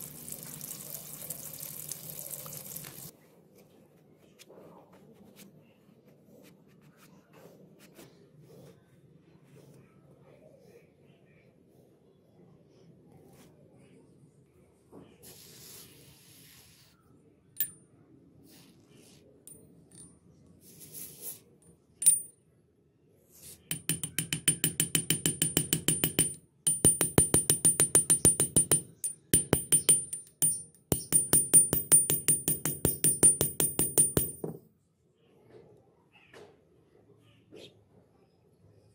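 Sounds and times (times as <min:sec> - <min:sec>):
metal tapping with ringing ping: 0:22.0 - 0:22.3, 0:23.7 - 0:34.6.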